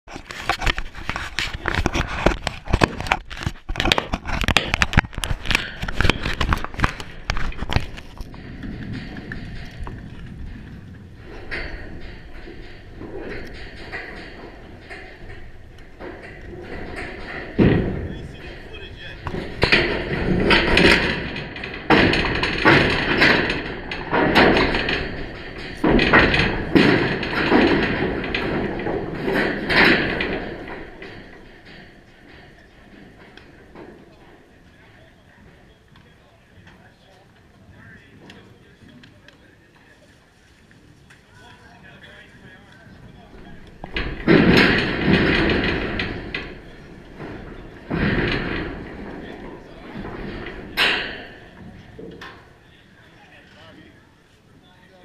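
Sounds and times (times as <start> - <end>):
knocks on chain-link fence: 3.8 - 34.0, 43.4 - 52.5.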